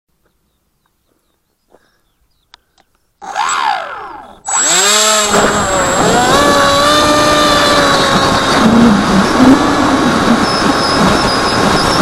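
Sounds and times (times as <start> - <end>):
electric motor and propeller whine: 3.2 - 12.0.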